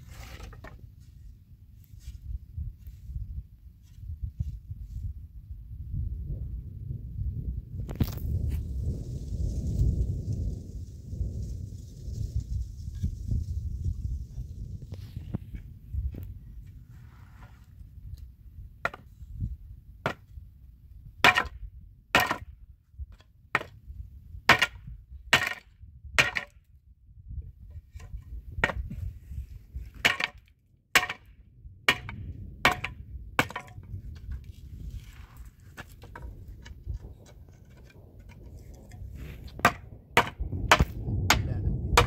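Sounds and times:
hatchet chopping wood: 18.8 - 19.1, 20.0 - 20.3, 21.2 - 21.6, 22.2 - 22.5, 23.5 - 23.7, 24.5 - 26.6, 30.0 - 31.3, 31.9 - 33.8, 39.6 - 41.4.

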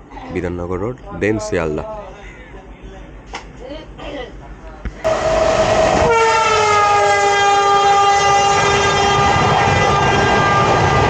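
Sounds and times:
train running noise: 4.9 - 11.0
train horn blast: 5.1 - 11.0.

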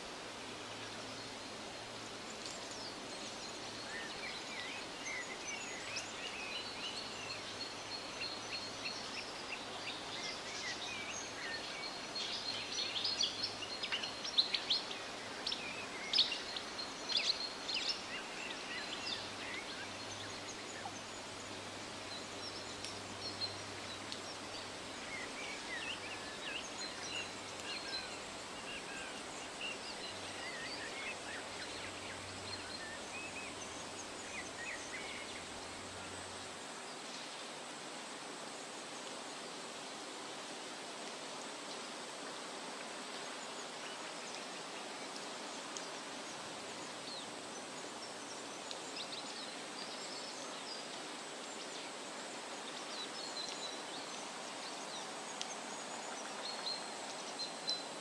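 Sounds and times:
songbirds chirping: 0.0 - 58.0
stream flowing over rocks: 0.0 - 58.0.

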